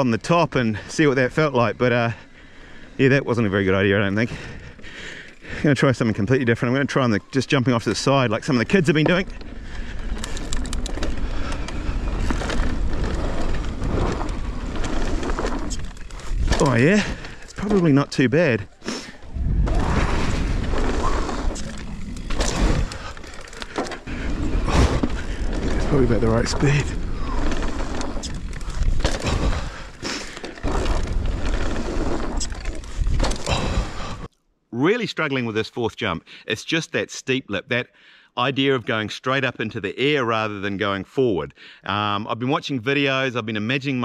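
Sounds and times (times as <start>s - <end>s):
tyres rumbling on dirt: 0.0s - 34.3s
bike clicks and rattles: 7.7s - 34.3s
wind noise on microphone: 19.3s - 21.6s.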